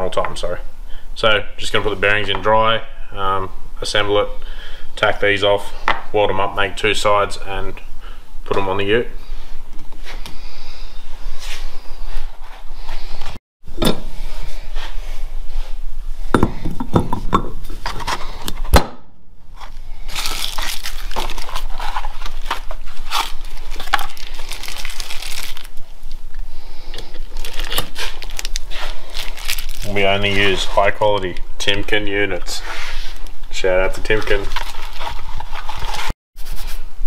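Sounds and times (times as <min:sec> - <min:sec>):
packaging crinkling: 0:20.1 - 0:26.1, 0:27.1 - 0:30.7, 0:34.0 - 0:36.1.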